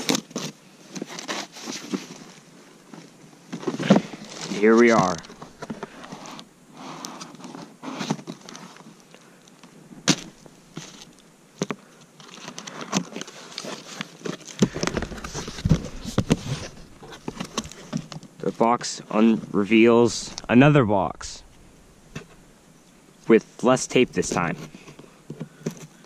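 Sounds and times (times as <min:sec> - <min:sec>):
cardboard flaps rustling: 0:03.6 - 0:06.4, 0:13.6 - 0:18.4
blades scraping cardboard: 0:14.6 - 0:18.0.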